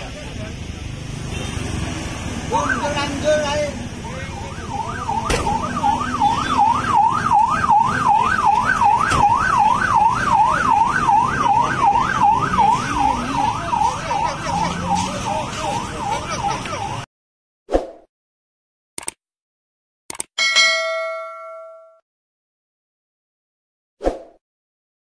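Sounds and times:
ambulance siren yelping: 2.5s - 17.1s.

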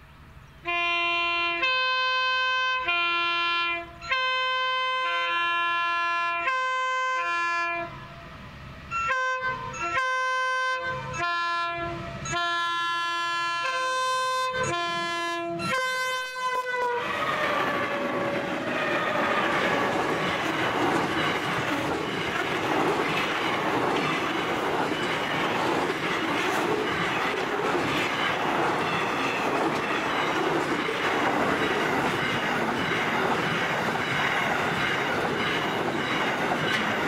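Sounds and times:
locomotive chime air horn blasts: 0.6s - 8.3s, 8.9s - 19.8s
train wheels rolling: 15.6s - 37.0s
locomotive engine noise: 17.0s - 37.0s.

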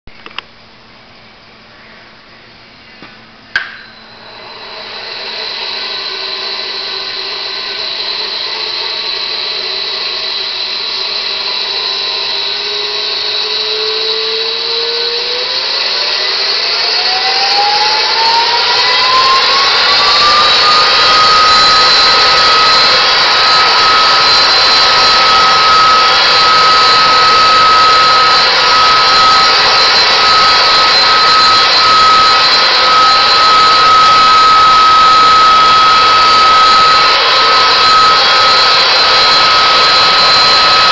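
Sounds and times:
switch click: 3.0s - 3.9s
spindle motor whirring: 3.6s - 40.9s.

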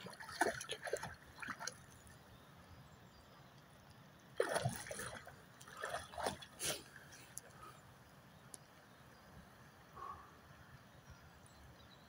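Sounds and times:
dog splashing in water: 0.0s - 1.8s, 4.4s - 6.8s
water trickling and dripping: 0.0s - 2.3s.

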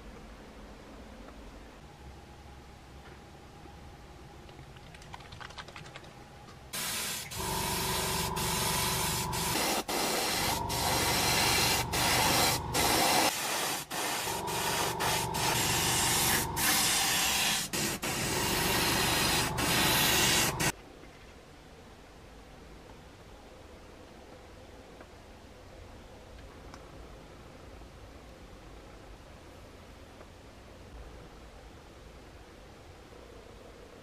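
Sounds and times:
airbrush air hiss: 6.8s - 20.7s
steady machine hum: 7.3s - 13.3s, 14.0s - 20.7s.

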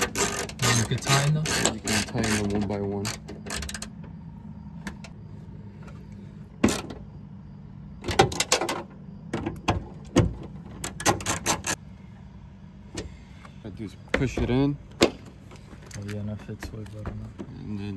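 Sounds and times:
ratchet clicking: 0.0s - 4.0s
low steady hum: 0.0s - 17.9s.

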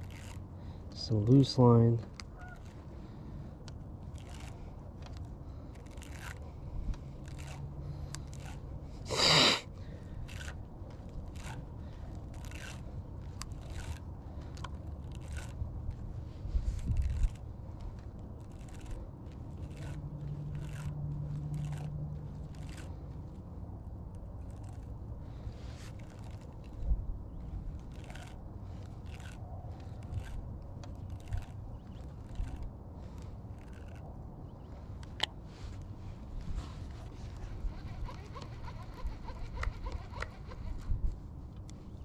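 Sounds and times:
fishing line clicks and scrapes: 0.0s - 42.0s.

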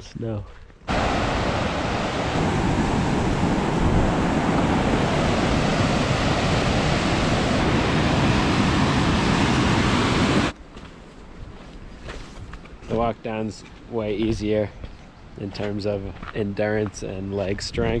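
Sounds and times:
waterfall rushing water: 0.9s - 10.5s.

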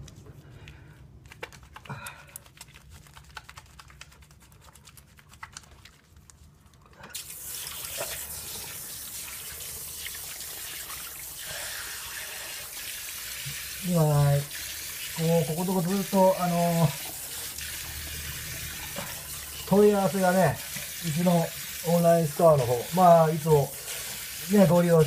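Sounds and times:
tap water running into sink: 7.1s - 25.0s
water splashing: 7.2s - 25.0s.

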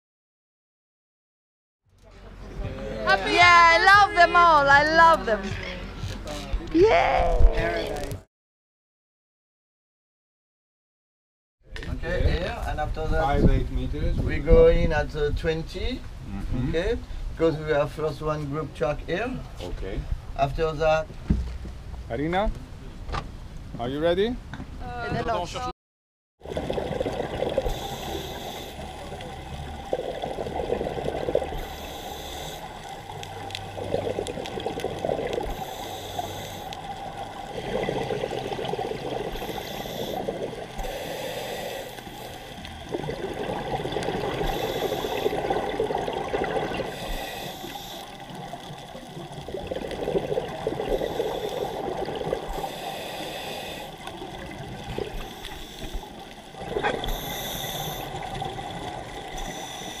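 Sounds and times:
exhaled bubbles gurgling: 26.4s - 60.0s
regulator hiss on inhale: 27.6s - 29.2s, 31.5s - 33.0s, 35.5s - 37.0s, 39.4s - 42.7s, 44.4s - 45.5s, 46.9s - 48.3s, 50.9s - 54.2s, 55.1s - 58.3s, 59.3s - 60.0s.

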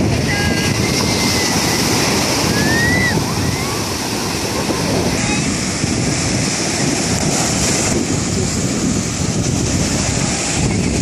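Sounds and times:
small waves breaking: 0.0s - 11.0s
wind buffeting microphone: 0.0s - 11.0s.

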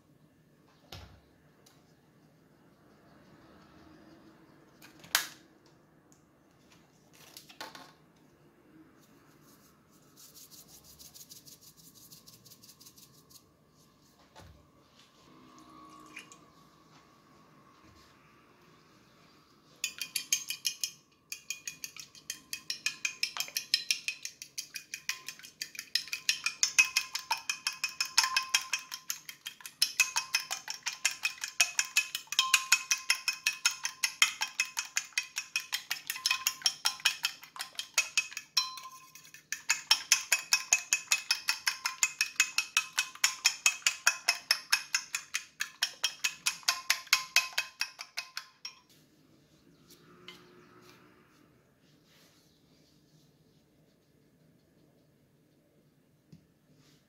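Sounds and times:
fork beating eggs on plate: 19.8s - 48.9s.

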